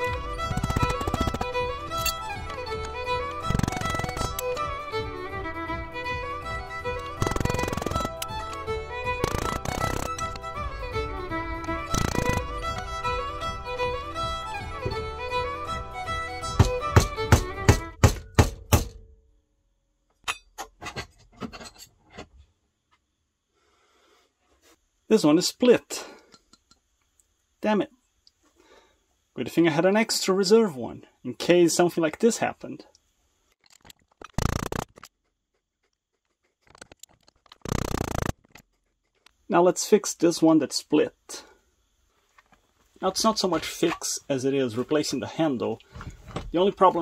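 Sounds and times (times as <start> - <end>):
wood scraping against steel: 0.0 - 4.8, 6.7 - 13.6
wooden handle cracking: 0.1 - 2.9, 3.5 - 4.6, 7.0 - 10.5
small clicks: 0.1 - 4.6, 7.0 - 10.5, 11.6 - 12.9, 35.8 - 39.4.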